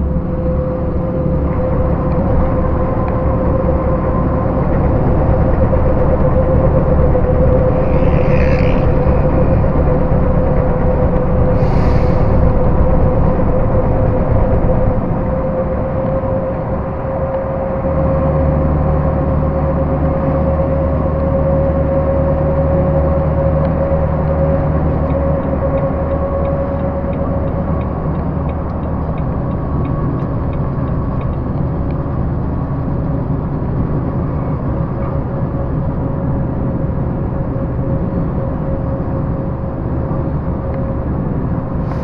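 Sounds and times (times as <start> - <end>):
higher whine: 0.0 - 42.0
truck diesel engine droning: 0.0 - 42.0.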